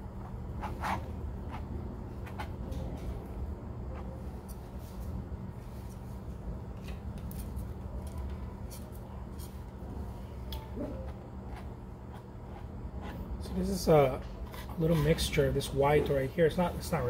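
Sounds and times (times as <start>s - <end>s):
steady low hum: 0.0s - 17.0s
palette knife scraping paint: 11.4s - 15.4s.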